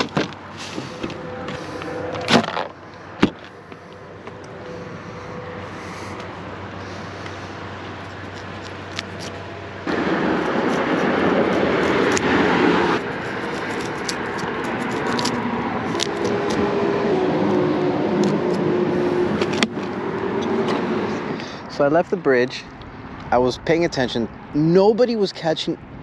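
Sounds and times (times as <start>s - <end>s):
road noise: 0.0s - 26.0s
wind: 0.0s - 26.0s
scissors snipping: 8.0s - 9.4s, 10.3s - 16.6s, 18.2s - 18.6s.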